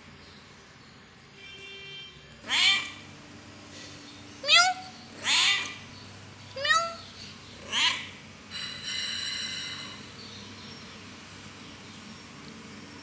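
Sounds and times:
young cat meowing: 4.4s - 5.8s, 6.6s - 7.0s.

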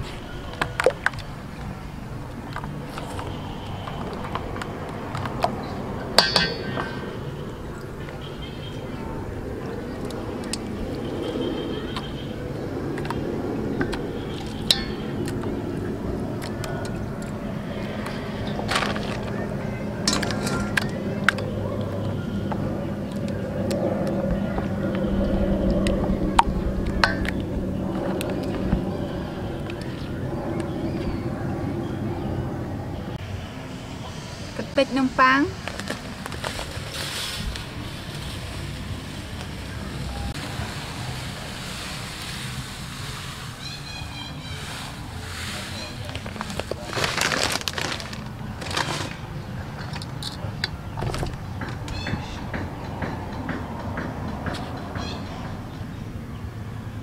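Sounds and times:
steady low rumble: 0.0s - 57.0s
metallic clink: 6.2s - 7.0s.

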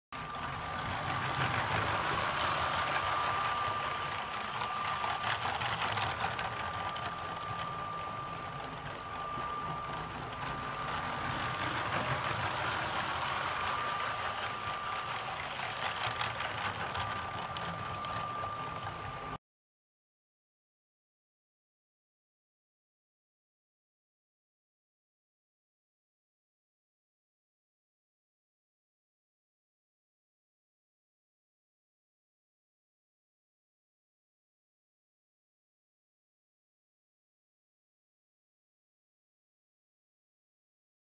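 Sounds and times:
plastic wheels rattling on track: 0.2s - 19.4s
toy train motor whining: 0.2s - 19.4s.

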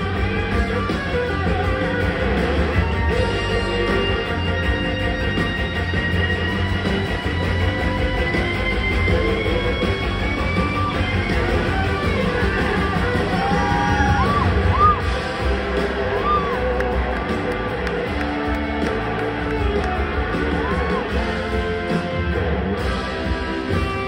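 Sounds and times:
live rock band playing: 0.0s - 24.0s.

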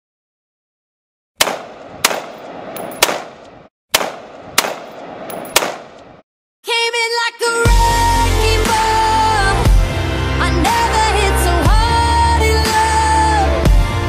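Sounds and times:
gunshots echoing: 1.4s - 6.2s
music: 6.7s - 14.0s.

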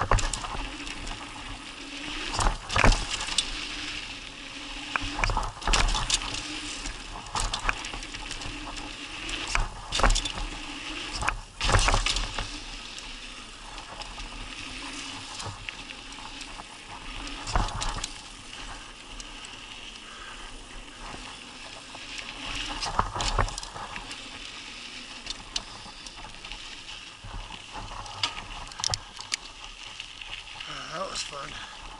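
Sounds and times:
bike rattling over bumps: 0.0s - 30.8s
bike tyres on dirt: 0.0s - 31.9s
bike knocks and clatters: 9.5s - 10.4s.

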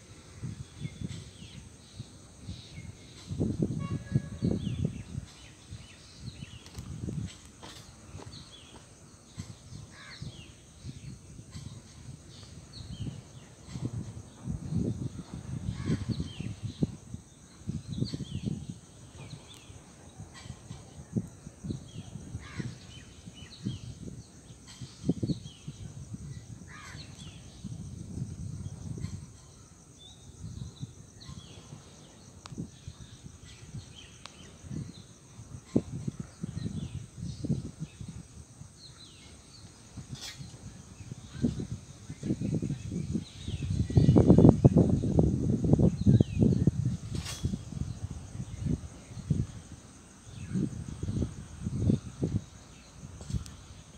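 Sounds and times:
wind buffeting microphone: 0.0s - 53.9s.

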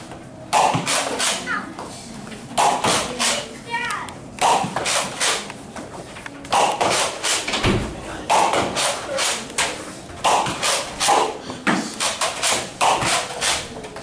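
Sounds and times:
toy blaster shots: 4.4s - 5.4s.

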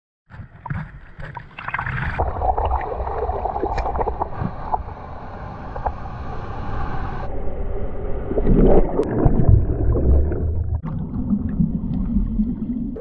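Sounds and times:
sea water sloshing and gurgling: 0.3s - 7.3s, 8.1s - 13.0s
waves breaking low rumble: 0.3s - 13.0s
small water splashes: 0.7s - 4.9s.

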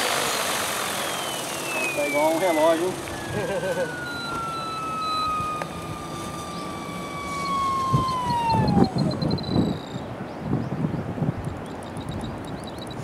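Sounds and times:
rc helicopter motor whining: 0.0s - 10.2s.

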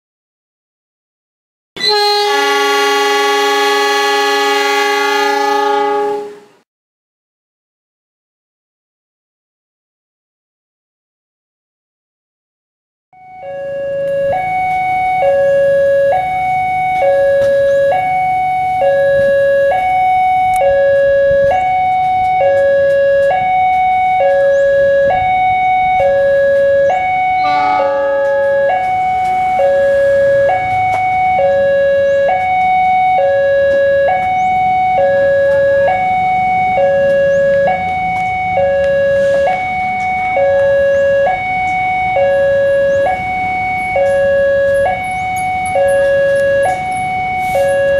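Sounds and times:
horn-like blare: 1.8s - 6.6s, 27.3s - 30.3s
two-tone crossing alarm chime: 13.2s - 47.9s.

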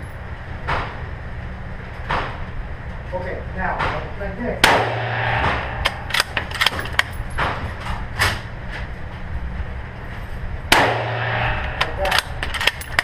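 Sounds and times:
rifle shot echoing: 4.6s - 6.7s, 10.7s - 12.3s.

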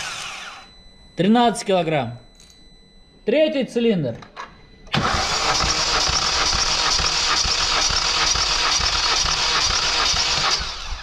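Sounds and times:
engine cranking on starter motor: 4.9s - 11.0s.

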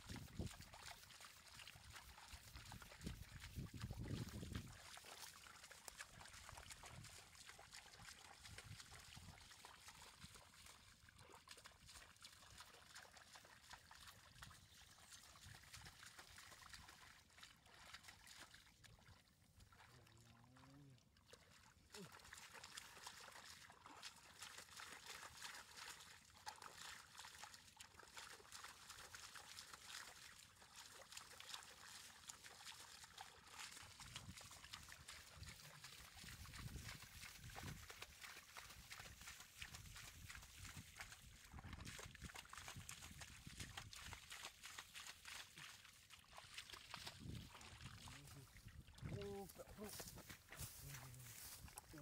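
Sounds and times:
water trickling: 0.0s - 52.0s
fish splashing and flapping: 21.8s - 52.0s.

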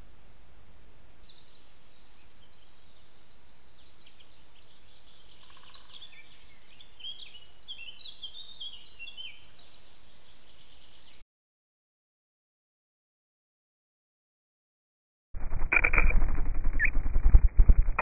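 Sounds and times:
songbirds singing: 1.2s - 11.2s.

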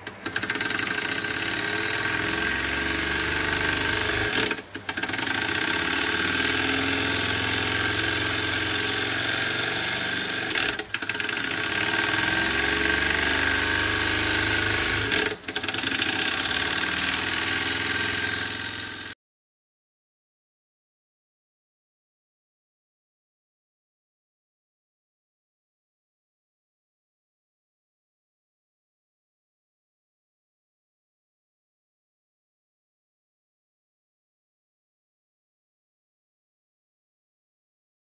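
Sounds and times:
model steam engine running: 0.0s - 19.1s.

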